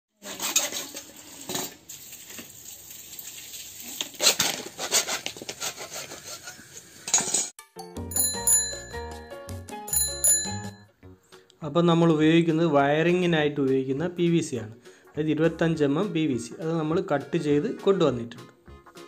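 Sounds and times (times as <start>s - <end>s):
hacksaw rasping through plastic: 4.2s - 6.6s
music: 7.6s - 19.0s.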